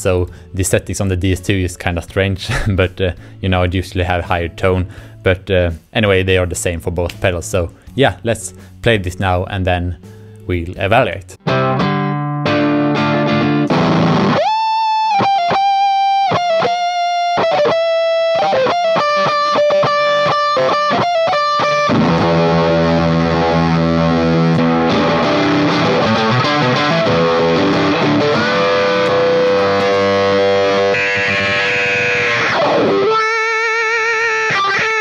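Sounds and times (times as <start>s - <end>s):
distorted electric guitar: 11.4s - 35.0s
electric guitar chords and notes: 11.4s - 35.0s.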